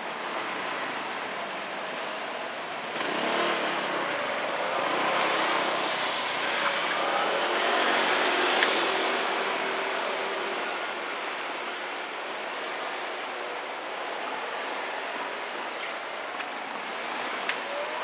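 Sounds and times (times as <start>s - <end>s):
cars passing on a street: 0.0s - 18.0s.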